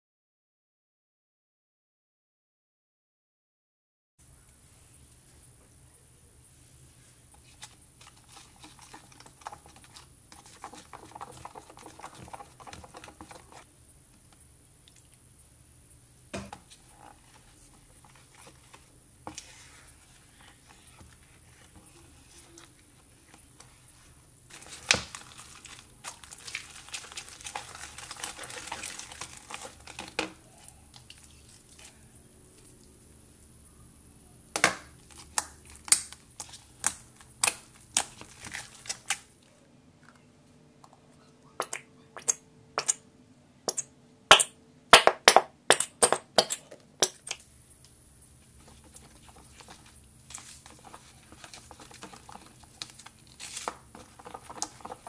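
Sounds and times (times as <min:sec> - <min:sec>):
slime squishing when stirred: 0:07.3 - 0:13.7, 0:16.6 - 0:32.9, 0:35.1 - 0:39.3, 0:41.6 - 0:43.0, 0:43.7 - 0:47.4, 0:48.4 - 0:55.0.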